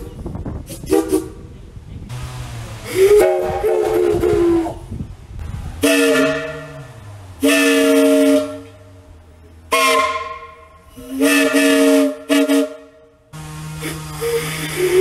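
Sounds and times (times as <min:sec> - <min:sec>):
locomotive whistle blasts: 0:02.9 - 0:04.8, 0:05.8 - 0:06.8, 0:07.4 - 0:08.8, 0:09.7 - 0:15.0.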